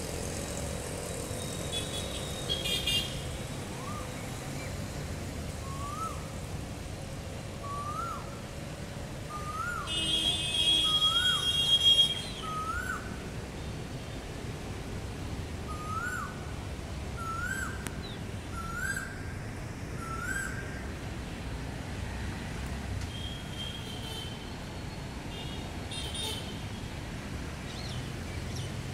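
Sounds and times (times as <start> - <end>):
low traffic rumble: 0.0 - 28.9
vehicle horn: 9.9 - 12.4.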